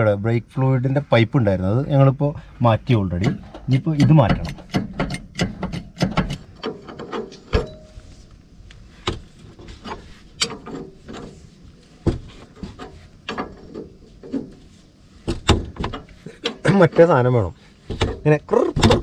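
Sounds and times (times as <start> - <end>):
spanners clicking on metal: 3.2 - 7.8.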